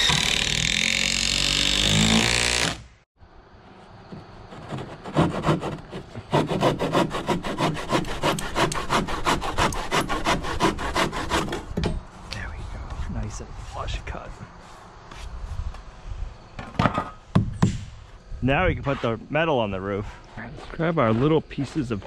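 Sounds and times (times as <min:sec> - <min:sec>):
handsaw cutting wood: 0:00.0 - 0:02.9, 0:04.5 - 0:11.7.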